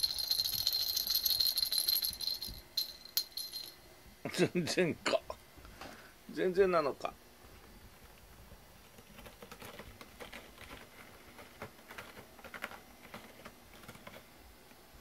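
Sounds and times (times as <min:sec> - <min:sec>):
cat claws clicking and tapping: 0:08.8 - 0:14.3.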